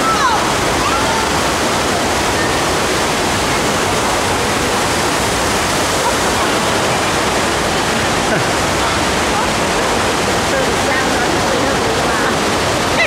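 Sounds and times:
rushing water spraying: 0:00.0 - 0:13.0.

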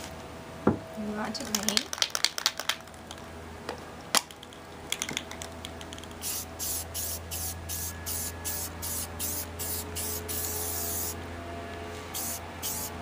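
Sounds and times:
spray-paint can hissing: 0:05.9 - 0:11.2, 0:12.1 - 0:13.0.

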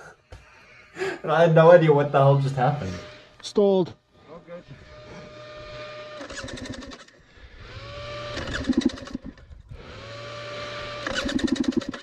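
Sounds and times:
starter cranking engine: 0:06.0 - 0:10.1, 0:10.8 - 0:12.0.

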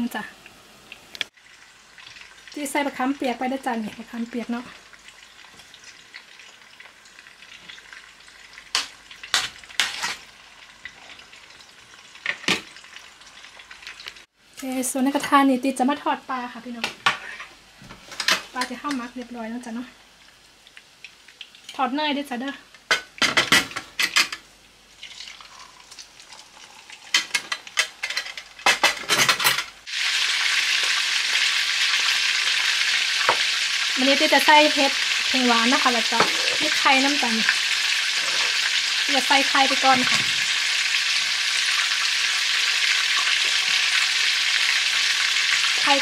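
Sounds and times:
faint sizzling crackle: 0:00.0 - 0:28.9, 0:29.6 - 0:46.0.

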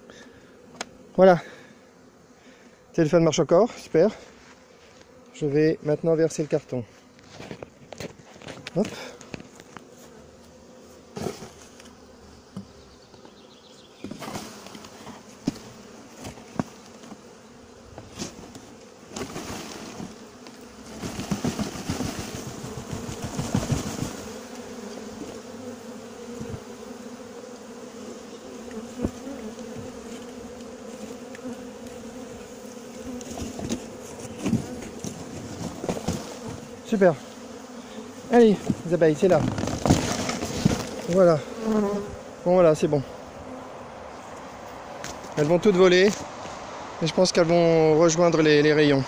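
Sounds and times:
honeybees buzzing: 0:00.0 - 0:49.0
rustling: 0:18.0 - 0:25.4, 0:38.6 - 0:41.9.

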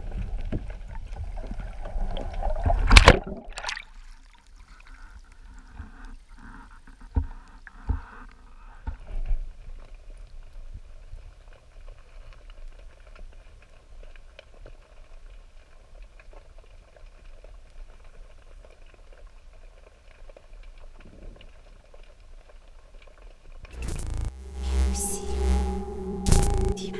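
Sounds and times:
water sloshing and splashing: 0:01.0 - 0:04.9
muffled underwater ambience: 0:23.7 - 0:26.9.

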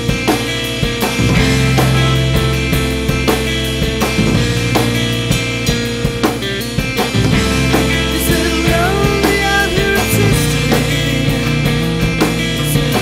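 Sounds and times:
punk rock band playing: 0:00.0 - 0:13.0
pitch-bending melodic line: 0:01.2 - 0:05.6.

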